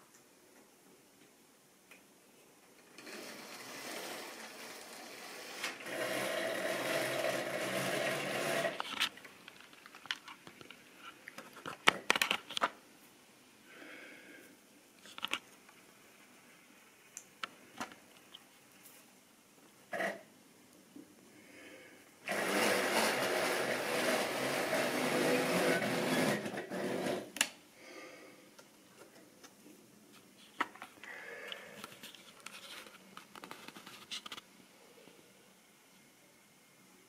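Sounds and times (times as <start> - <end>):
model train electric motor running: 3.0 - 8.8, 22.3 - 27.2.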